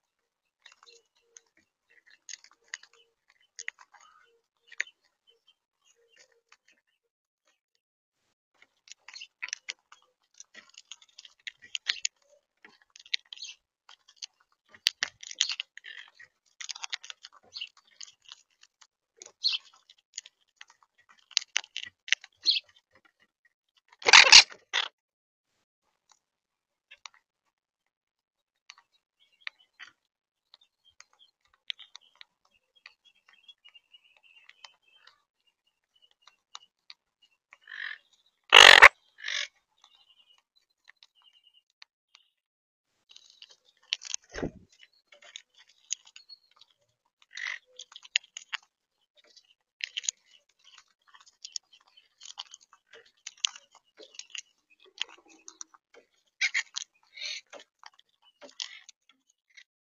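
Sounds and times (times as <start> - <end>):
beaks cracking seeds: 38.5 - 38.9, 49.8 - 55.8.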